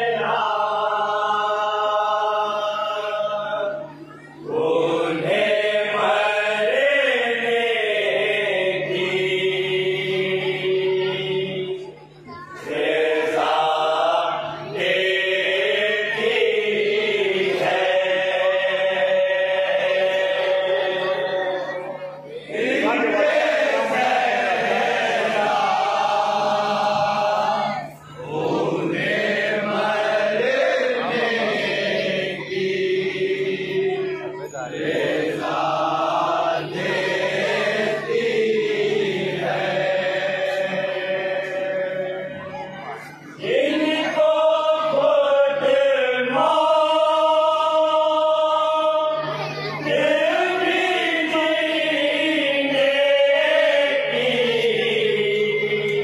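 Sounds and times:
men chanting into a microphone: 0:43.4 - 0:56.0.

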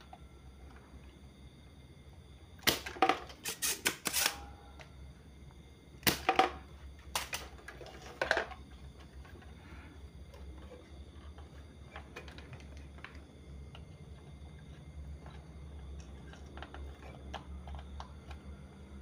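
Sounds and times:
desoldering pump snaps and clicks: 0:02.6 - 0:04.4, 0:07.1 - 0:07.5.

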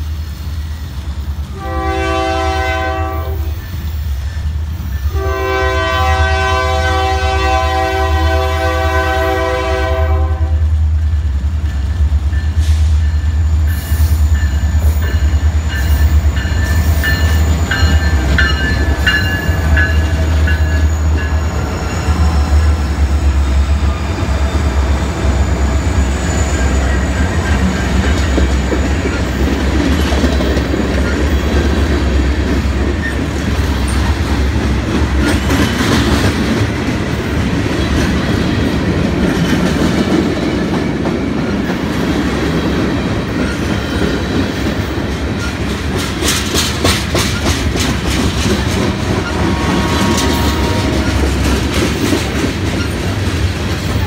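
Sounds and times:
diesel locomotive engines rumbling: 0:00.0 - 0:54.0
steel wheels rolling on rail: 0:00.0 - 0:54.0
wheels clicking over rail joints: 0:27.3 - 0:54.0.

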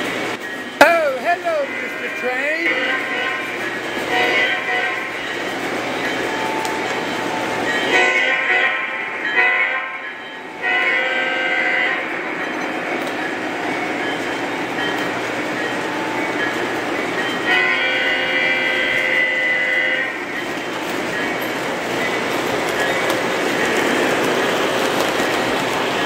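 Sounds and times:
train cars rolling on track: 0:00.0 - 0:26.0
train horn blasts: 0:01.5 - 0:05.2, 0:07.8 - 0:12.3, 0:17.4 - 0:20.2.

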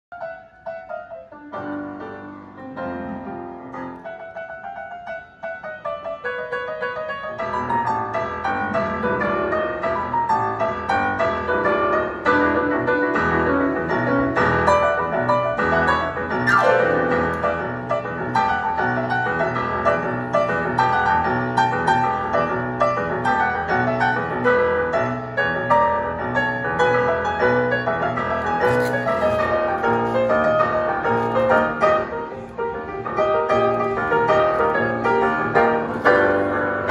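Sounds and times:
solo piano playing: 0:00.1 - 0:36.9.

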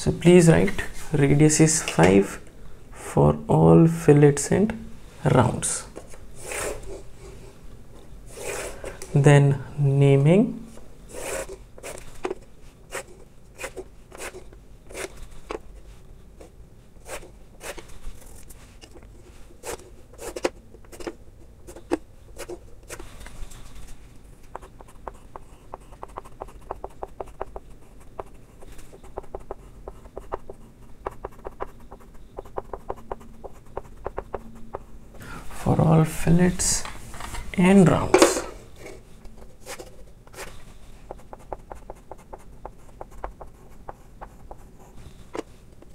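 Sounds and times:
chalk scratching on blackboard: 0:11.1 - 0:12.1, 0:12.9 - 0:15.4, 0:24.5 - 0:34.8, 0:39.6 - 0:45.5
chalk tapping and scraping: 0:11.1 - 0:15.6, 0:19.6 - 0:23.1, 0:24.4 - 0:34.9, 0:38.2 - 0:45.9.

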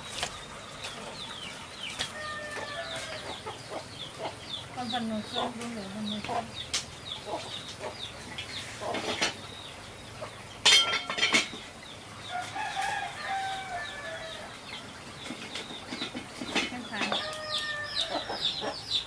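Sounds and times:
chickens clucking: 0:00.0 - 0:19.0
rooster crowing: 0:02.1 - 0:03.4, 0:12.3 - 0:14.5, 0:17.1 - 0:18.6.

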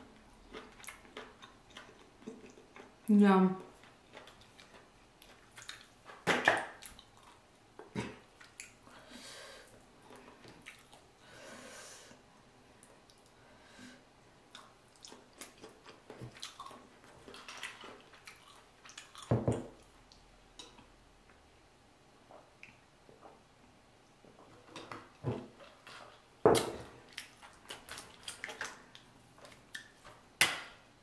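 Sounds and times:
chewing: 0:00.5 - 0:03.0, 0:03.6 - 0:06.2, 0:10.0 - 0:11.1, 0:14.5 - 0:20.7, 0:27.0 - 0:30.2
wet eating squishes: 0:03.6 - 0:08.8, 0:10.1 - 0:11.1, 0:14.5 - 0:20.2, 0:27.0 - 0:30.2.

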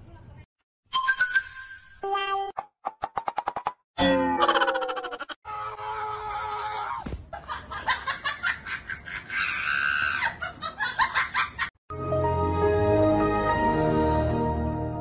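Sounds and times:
chicken-like clucking cries: 0:04.4 - 0:07.0
music: 0:11.9 - 0:15.0.

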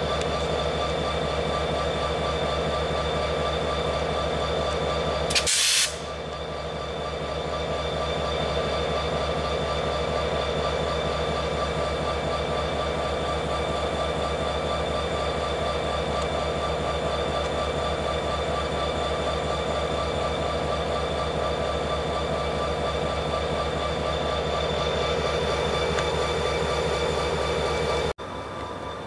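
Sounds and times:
diesel locomotive engine running: 0:00.0 - 0:29.0
short sharp hiss: 0:05.3 - 0:06.1.

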